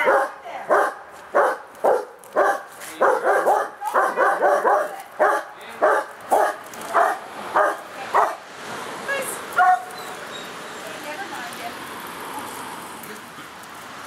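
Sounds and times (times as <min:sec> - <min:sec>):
dog barking: 0:00.0 - 0:08.4, 0:09.6 - 0:10.0.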